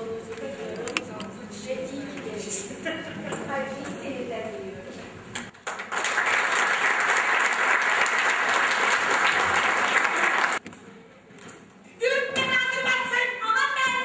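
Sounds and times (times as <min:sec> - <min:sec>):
audience applause: 0:05.6 - 0:10.6.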